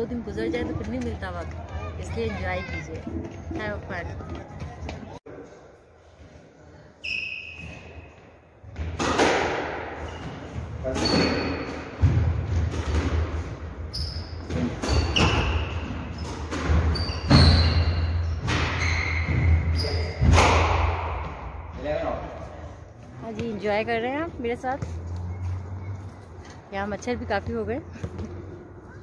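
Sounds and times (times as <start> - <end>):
sneaker squeaks on wooden floor: 7.0 - 8.4, 10.0 - 12.0, 13.9 - 20.2, 24.6 - 26.7
squash ball hitting rackets and walls: 8.6 - 21.7.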